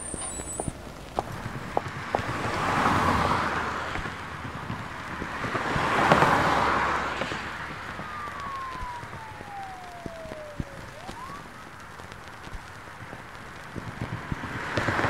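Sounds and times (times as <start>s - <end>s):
vehicles passing by: 0.0s - 15.0s
siren wailing: 5.8s - 12.4s.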